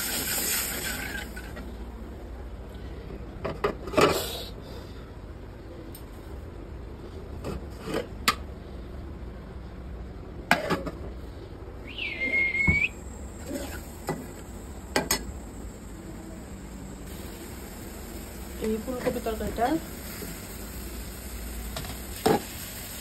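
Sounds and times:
short high squeal: 0:11.8 - 0:13.8.

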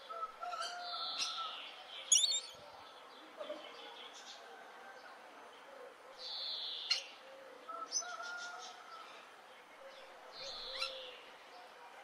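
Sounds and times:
harsh bird calls: 0:02.1 - 0:02.6
soft whistled bird notes: 0:02.1 - 0:02.6.

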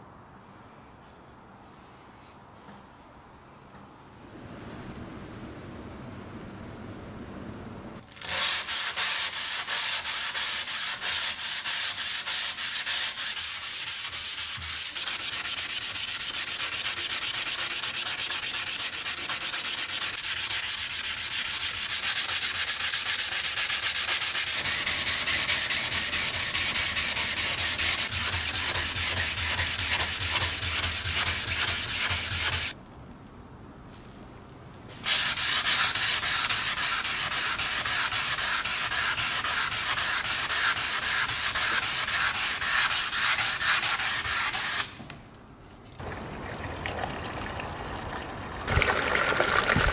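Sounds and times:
sandpaper scraping steel: 0:08.2 - 0:32.8, 0:35.0 - 0:45.0.

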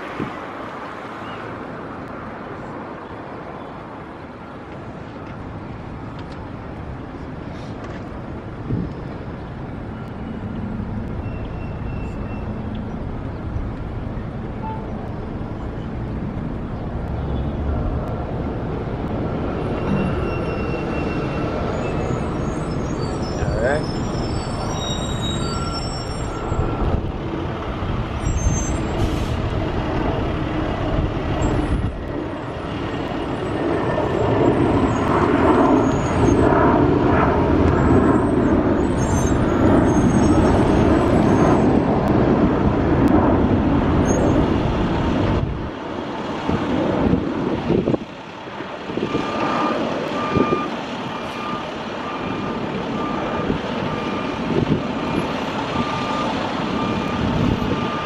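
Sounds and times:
bus diesel engines running: 0:09.1 - 0:33.6, 0:46.4 - 0:58.0
backup alarm beeping: 0:14.6 - 0:15.0, 0:49.0 - 0:58.0.

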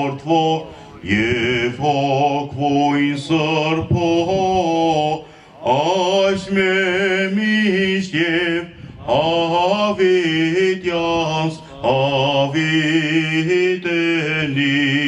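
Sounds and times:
person chanting unaccompanied: 0:00.0 - 0:15.0.

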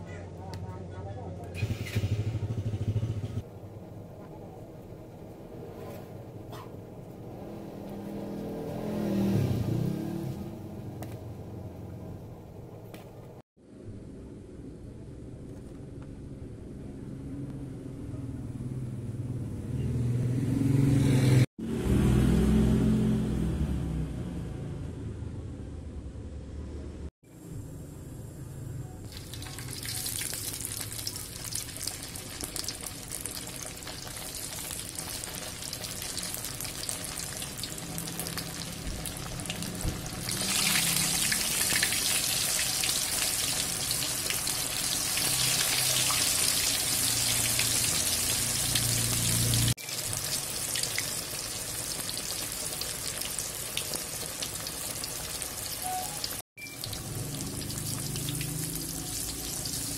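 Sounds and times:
hot oil sizzling and bubbling: 0:29.1 - 0:59.9.

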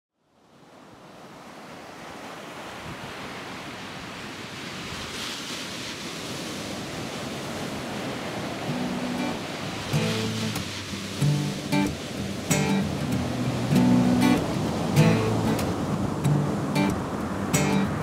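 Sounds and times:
steady rushing noise: 0:08.2 - 0:18.0.

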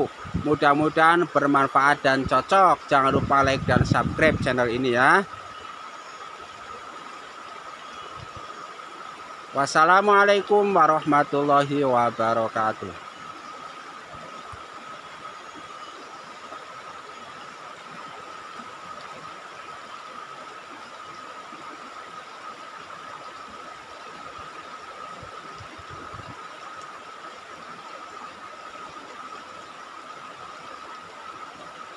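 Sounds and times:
steady high-pitched tone: 0:00.0 - 0:21.5.

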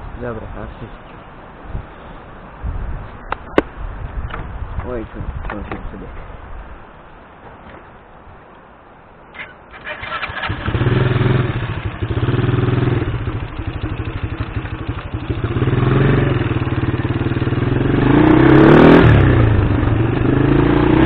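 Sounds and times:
vehicle engine idling and revving: 0:09.7 - 0:21.0.

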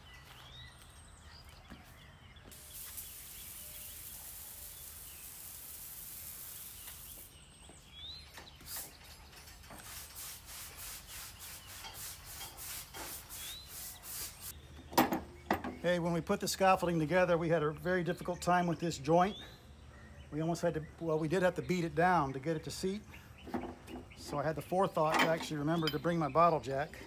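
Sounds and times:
steady hiss: 0:02.5 - 0:07.4, 0:08.7 - 0:14.6
stiff brush scrubbing: 0:09.8 - 0:14.5.

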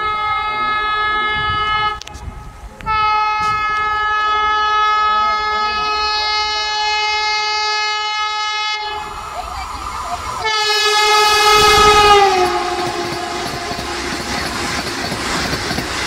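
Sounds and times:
train horn blasts: 0:00.0 - 0:02.0, 0:02.9 - 0:09.2, 0:10.4 - 0:14.3.

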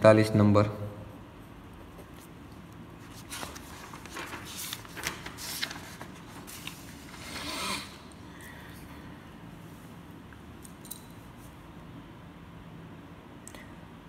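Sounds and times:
hand rustling over paper: 0:01.8 - 0:07.4.

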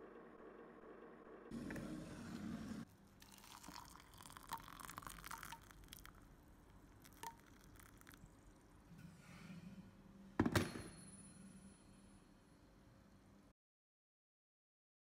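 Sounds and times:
hot water pouring into mug: 0:02.6 - 0:08.9
small splashes and drips: 0:03.2 - 0:08.6.

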